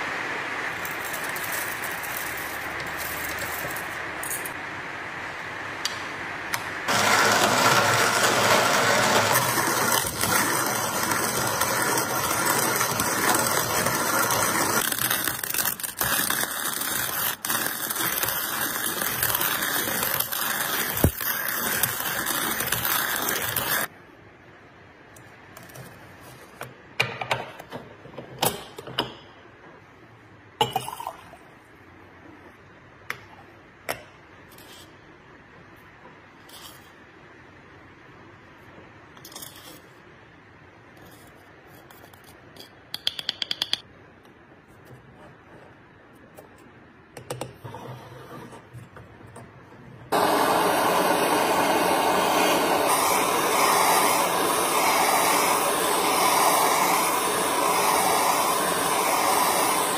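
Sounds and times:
coffee mill grinding: 0:00.8 - 0:04.6, 0:06.9 - 0:23.9, 0:50.1 - 0:59.9.

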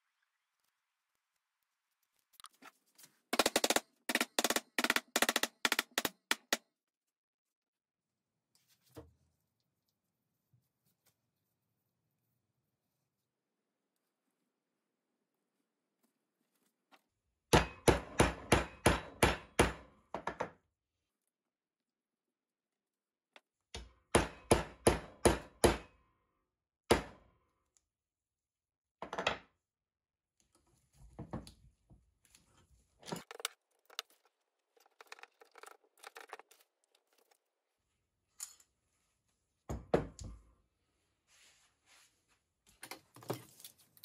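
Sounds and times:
metal clamps clunking and rattling: 0:33.0 - 0:34.1.

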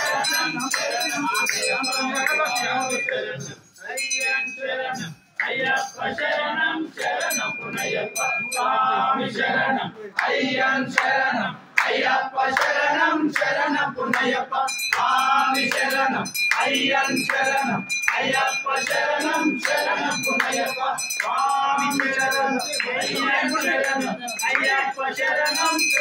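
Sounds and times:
small metal bell ringing: 0:00.0 - 0:06.4, 0:07.0 - 0:09.1, 0:14.7 - 0:26.0
voices singing devotional song: 0:00.0 - 0:26.0.

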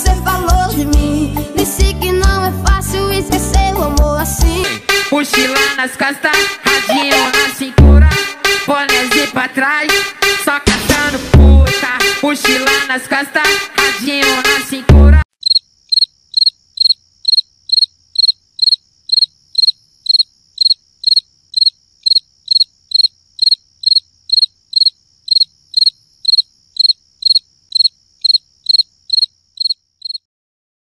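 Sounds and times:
cricket chirping: 0:15.3 - 0:30.3.

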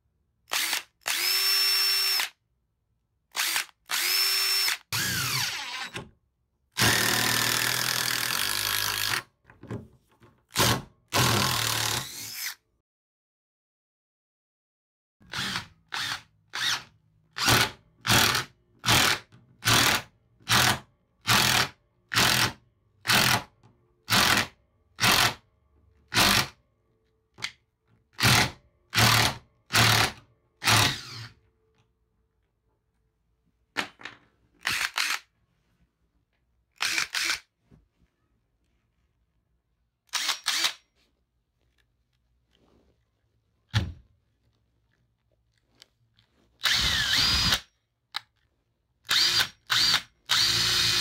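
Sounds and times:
cordless drill bursts: 0:00.5 - 0:02.4, 0:03.3 - 0:06.0, 0:28.2 - 0:31.3, 0:40.1 - 0:40.8, 0:46.6 - 0:47.6, 0:49.1 - 0:51.0.

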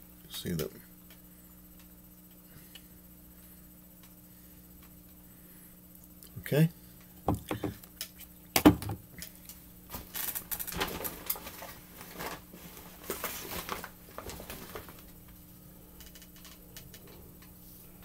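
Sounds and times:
items being set down: 0:08.6 - 0:09.0
plastic bag crinkling: 0:09.9 - 0:15.2.

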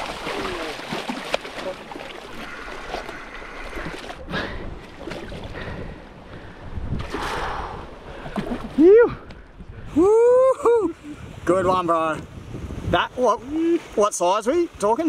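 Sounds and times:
fish splashing: 0:00.0 - 0:05.7, 0:07.0 - 0:08.8
water sloshing against rock: 0:00.0 - 0:09.7.

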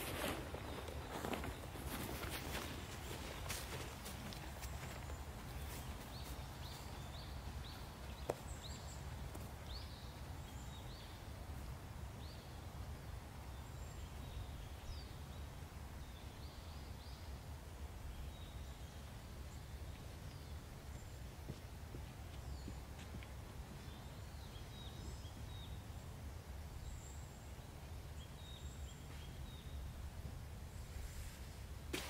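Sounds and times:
small birds chirping: 0:00.0 - 0:11.4, 0:18.0 - 0:30.0.

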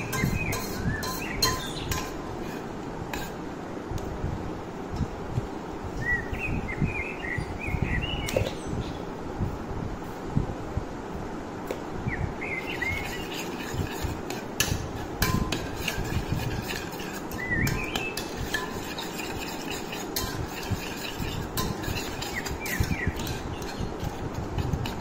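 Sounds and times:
spoon clinking against steel bowl: 0:00.0 - 0:02.3, 0:12.8 - 0:25.0.

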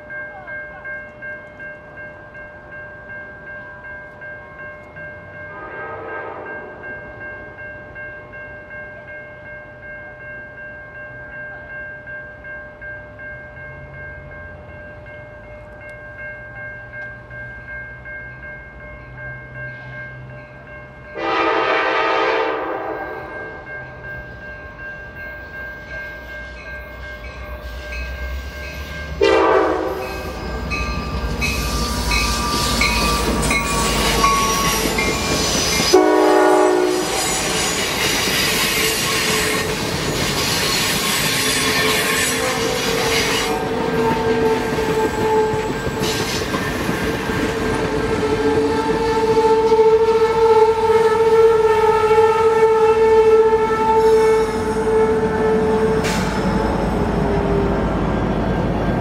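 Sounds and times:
steady train whine: 0:00.0 - 0:59.0
locomotive horn blasts: 0:05.5 - 0:06.8, 0:21.2 - 0:23.7, 0:29.2 - 0:30.6, 0:31.8 - 0:39.7, 0:41.5 - 0:45.8, 0:48.2 - 0:56.7
train wheels clacking on rails: 0:24.3 - 0:49.8.

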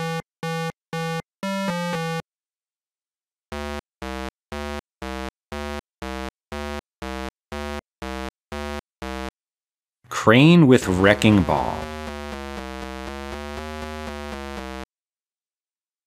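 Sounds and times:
pulsing buzzy engine tone: 0:11.6 - 0:14.8.

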